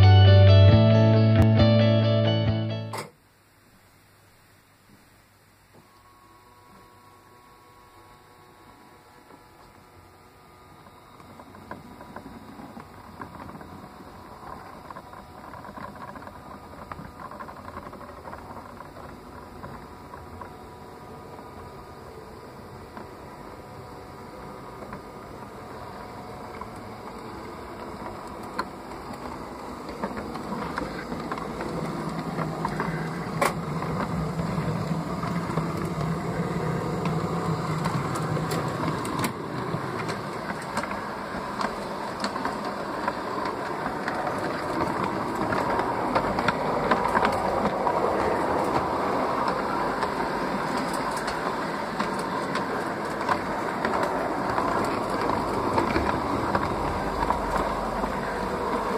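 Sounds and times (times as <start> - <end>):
wheels clicking over rails: 24.2 - 58.9.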